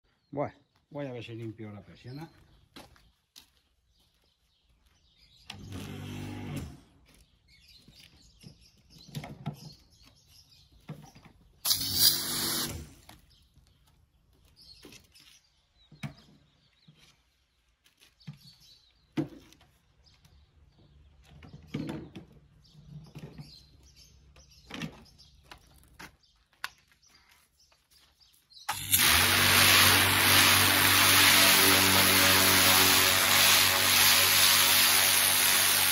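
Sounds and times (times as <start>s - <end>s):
pressure washer motor hum: 11.6s - 13.0s, 28.7s - 35.9s
water spray hissing on shutter: 11.6s - 13.1s, 28.7s - 35.9s.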